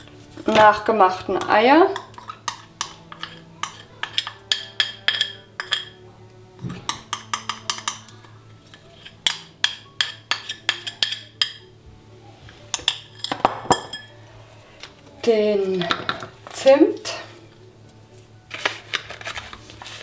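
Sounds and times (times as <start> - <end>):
utensil clinking against bowl: 0.5 - 6.0, 6.7 - 11.6.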